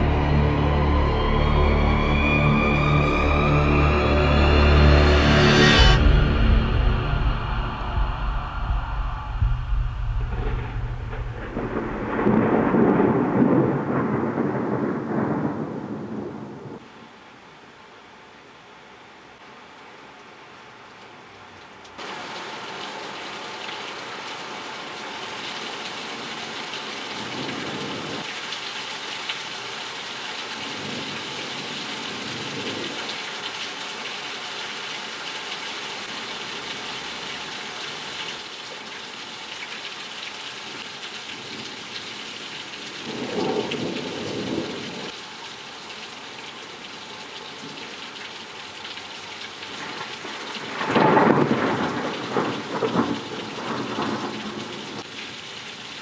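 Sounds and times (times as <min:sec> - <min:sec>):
heavy rain falling: 0:00.0 - 0:17.5, 0:19.3 - 0:56.0
thunder rumbling: 0:05.8 - 0:16.8, 0:43.0 - 0:45.1, 0:49.8 - 0:55.1.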